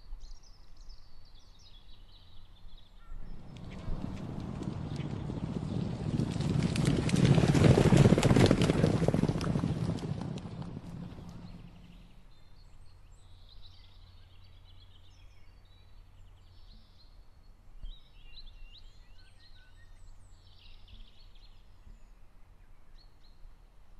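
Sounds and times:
songbirds chirping: 0.0s - 23.9s
low steady hum: 7.9s - 23.9s.

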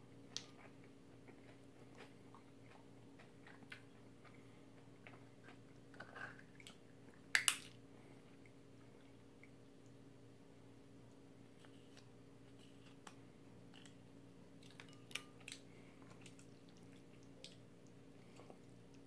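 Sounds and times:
steady low hum: 0.0s - 19.0s
wet squishes of noodles stirred: 11.5s - 19.0s.

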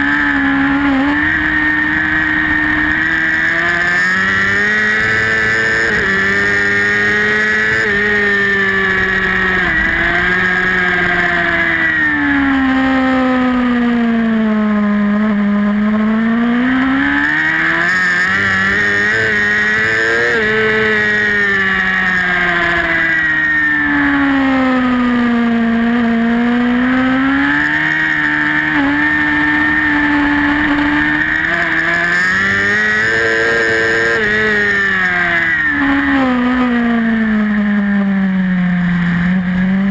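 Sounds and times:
racing motorcycle engine: 0.0s - 39.9s.

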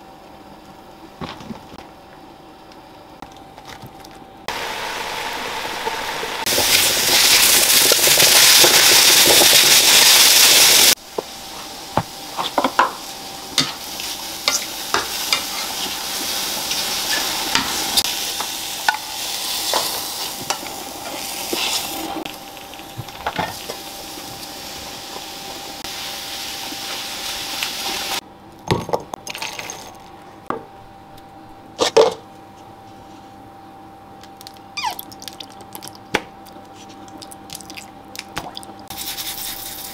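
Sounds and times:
mushrooms sizzling in frying pan: 4.5s - 28.2s.

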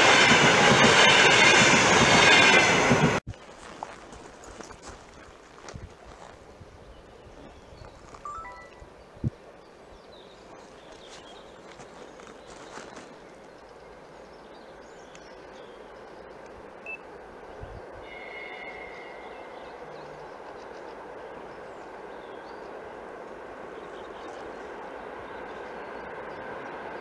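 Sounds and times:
distant train rumble: 0.0s - 27.0s
short high tone: 8.3s - 8.9s.

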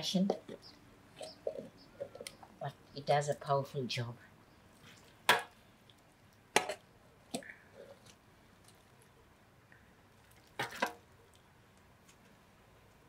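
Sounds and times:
wet squishes of gravy: 10.0s - 12.5s.

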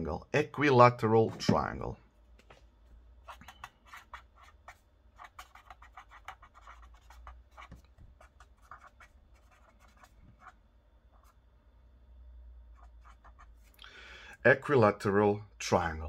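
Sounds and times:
pen scratching on paper: 3.2s - 11.4s, 12.7s - 13.7s.

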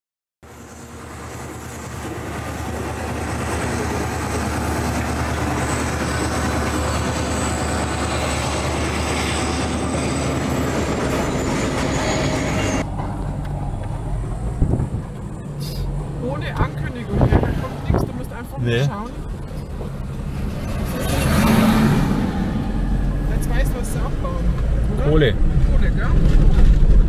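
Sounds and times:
locomotive engines droning: 0.4s - 27.0s
high wheel squeal: 5.3s - 12.9s.

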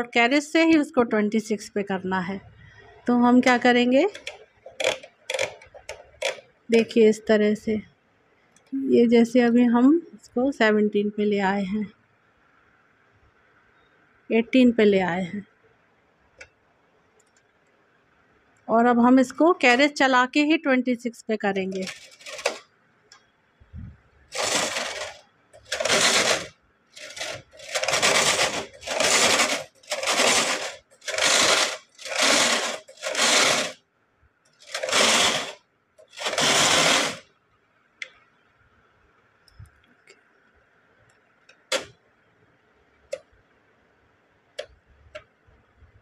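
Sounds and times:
knitting machine carriage sliding: 3.5s - 6.4s, 21.6s - 22.6s, 24.3s - 33.8s, 34.6s - 37.2s.

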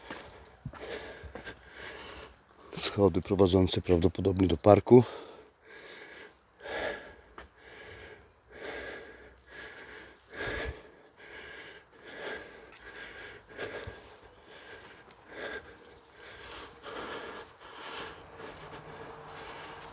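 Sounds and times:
man breathing heavily: 0.0s - 3.1s, 4.9s - 19.9s.

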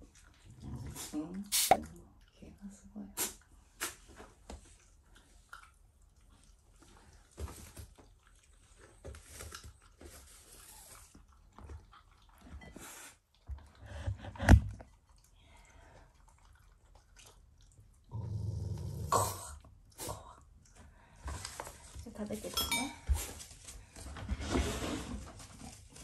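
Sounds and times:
dog chewing and crunching food: 3.6s - 18.1s.

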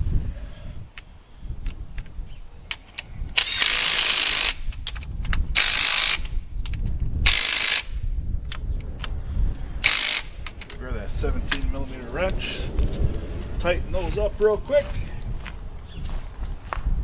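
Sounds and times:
cordless power tool bursts: 3.4s - 4.6s, 7.3s - 7.9s, 9.8s - 10.5s.

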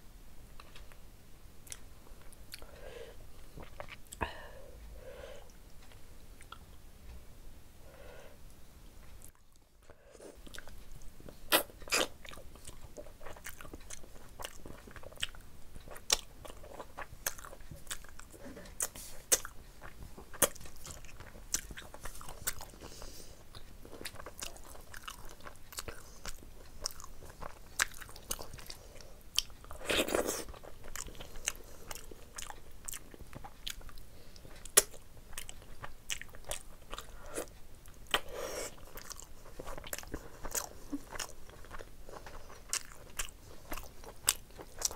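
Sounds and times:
wet mouth clicks and chewing: 10.4s - 22.9s, 23.5s - 44.9s.

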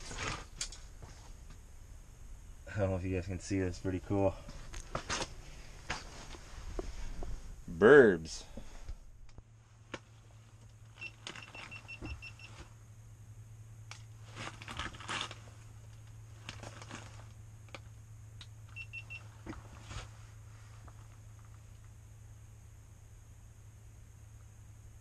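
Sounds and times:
low steady hum: 0.0s - 25.0s
handling clicks and rustling: 9.2s - 12.7s, 13.9s - 20.1s.

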